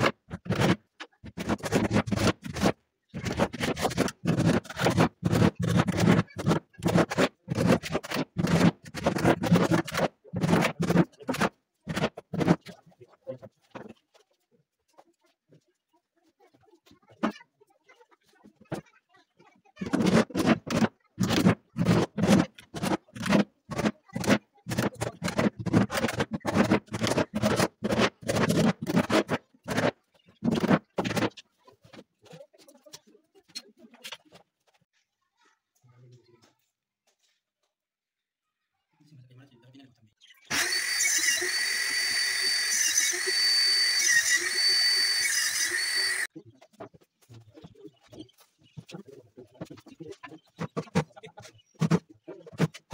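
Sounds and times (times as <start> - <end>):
hand tool scraping wood: 0.0 - 12.8, 19.8 - 31.4
high-speed motor whining: 40.5 - 46.3.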